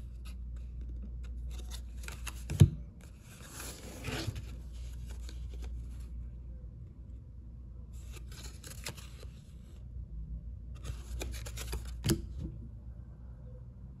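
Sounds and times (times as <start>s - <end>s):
steady low hum: 0.0s - 14.0s
trading cards rustling and sliding: 0.1s - 6.2s, 8.0s - 9.5s, 10.8s - 12.2s.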